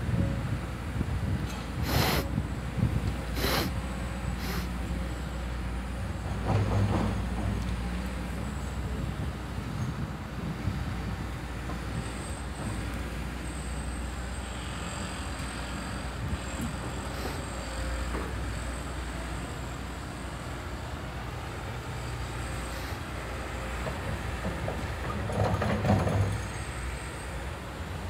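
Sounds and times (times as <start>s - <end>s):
excavator diesel engine running: 0.1s - 28.0s.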